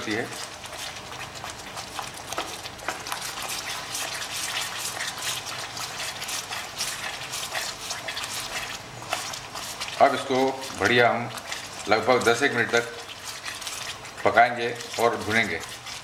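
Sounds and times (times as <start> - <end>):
masala sizzling in ghee: 0.0 - 16.0
wooden spatula scraping pan: 0.0 - 16.0.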